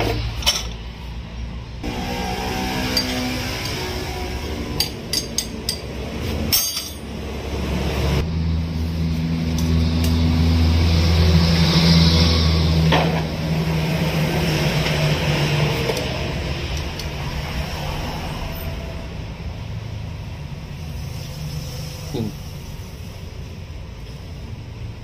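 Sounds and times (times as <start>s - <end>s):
vehicle engine humming: 0.0s - 25.0s
metal rod clinking on engine: 6.5s - 7.1s.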